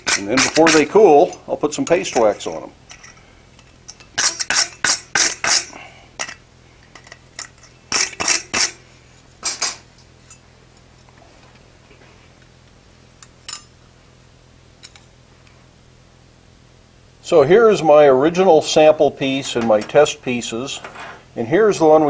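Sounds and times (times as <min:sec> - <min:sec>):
wire brush scrubbing iron: 0:00.0 - 0:03.1, 0:03.9 - 0:06.3, 0:07.9 - 0:08.8.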